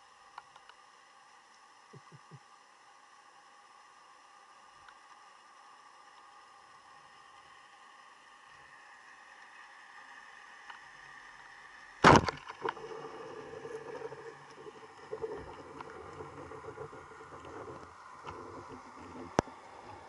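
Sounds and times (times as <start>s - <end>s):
quiet uneven underwater noise: 0.0s - 20.0s.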